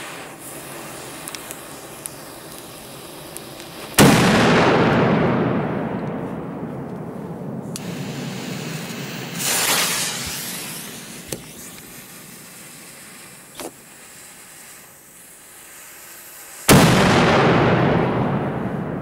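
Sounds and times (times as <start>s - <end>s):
small pops: 0.0s - 4.5s, 7.7s - 17.1s
firecracker fuse hissing: 0.0s - 6.3s, 7.0s - 19.0s
loud firecracker bang: 3.9s - 11.7s, 16.7s - 19.0s.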